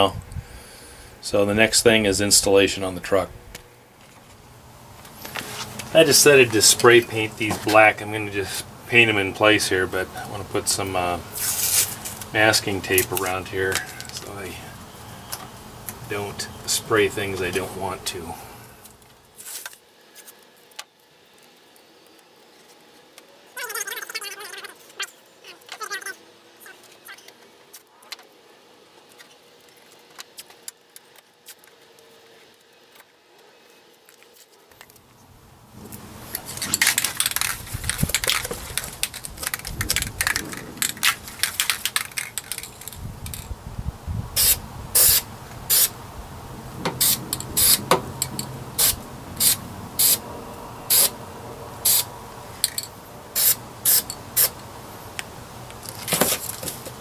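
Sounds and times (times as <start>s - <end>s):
aerosol spray can spraying: 44.4s - 45.9s, 46.9s - 47.9s, 48.8s - 50.2s, 50.9s - 51.2s, 51.8s - 52.1s, 53.4s - 54.5s.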